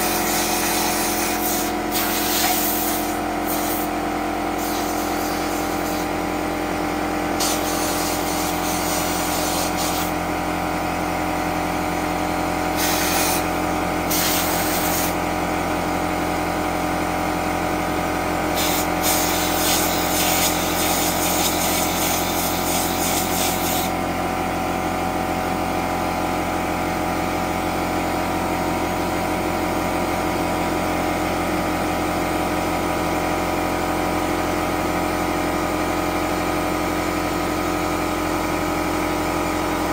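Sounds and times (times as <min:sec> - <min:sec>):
compressed air hissing: 0:00.0 - 0:03.9, 0:04.6 - 0:06.1, 0:07.4 - 0:10.1, 0:12.8 - 0:13.5, 0:14.1 - 0:15.2, 0:18.6 - 0:23.9
air compressor running: 0:00.0 - 0:39.9.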